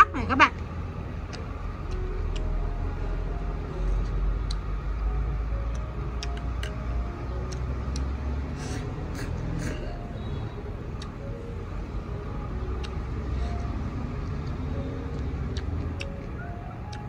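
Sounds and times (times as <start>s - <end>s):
chopsticks clicking against bowl: 5.7s - 6.8s
person eating noisily: 5.7s - 6.8s, 7.5s - 10.0s.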